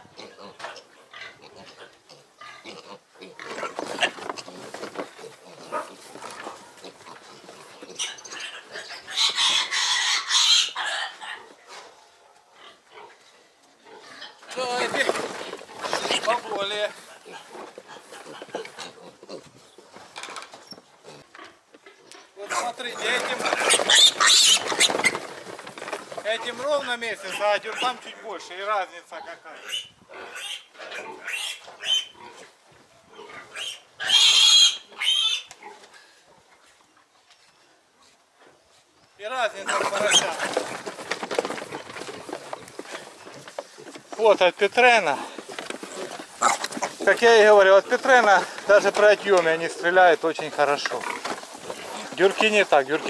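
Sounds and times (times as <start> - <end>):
piglets squealing: 7.8 - 11.4, 22.6 - 25.3, 29.6 - 32.4, 33.2 - 35.5, 39.6 - 40.4.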